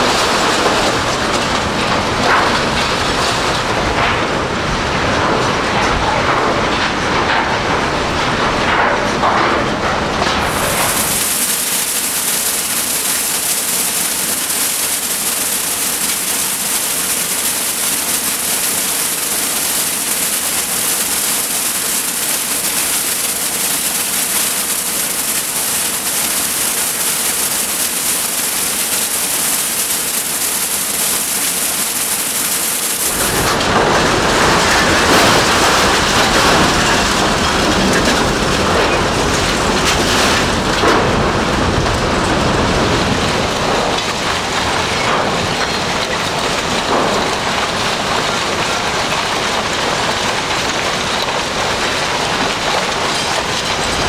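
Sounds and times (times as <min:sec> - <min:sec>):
car shredder grinding rumble: 0:00.0 - 0:54.0
steady high hiss: 0:10.5 - 0:33.2.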